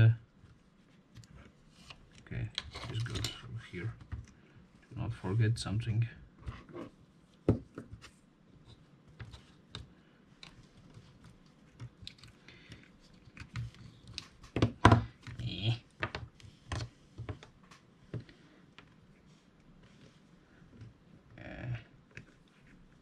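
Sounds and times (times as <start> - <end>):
light clicks and knocks of parts: 0.4 - 4.4, 8.6 - 19.0.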